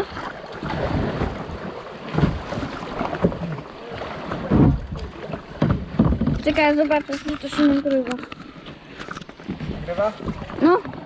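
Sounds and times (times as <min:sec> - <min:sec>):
river water splashing: 0:00.0 - 0:11.0
knocks on boat: 0:00.7 - 0:03.6, 0:04.2 - 0:07.0.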